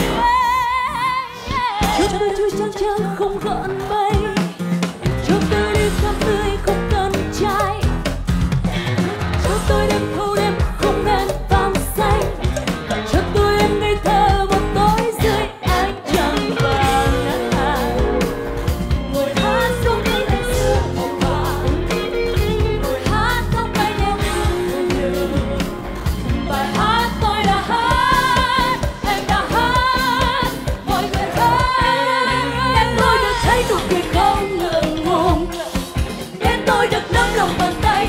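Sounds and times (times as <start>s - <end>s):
women singing pop song: 0.0s - 8.0s, 8.8s - 38.0s
pop backing with steady beat: 1.8s - 38.0s.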